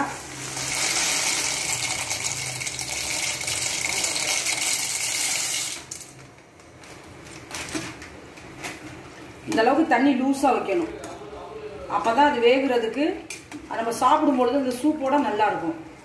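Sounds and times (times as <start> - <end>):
dry pasta pouring into pot: 0.0 - 6.2.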